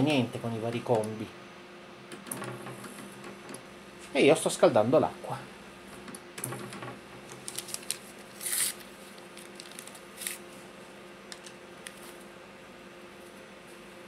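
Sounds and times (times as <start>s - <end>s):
microwave oven humming: 0.0s - 14.0s
wires and connectors clicking: 11.3s - 12.1s.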